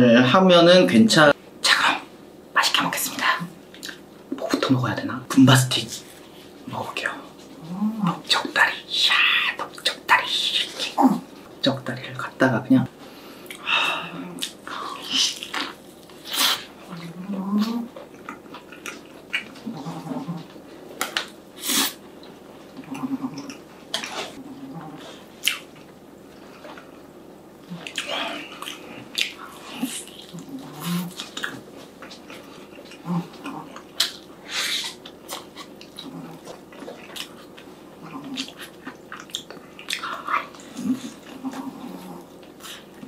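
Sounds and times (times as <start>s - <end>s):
wet chewing and lip smacks: 25.4s - 25.9s, 27.7s - 41.5s.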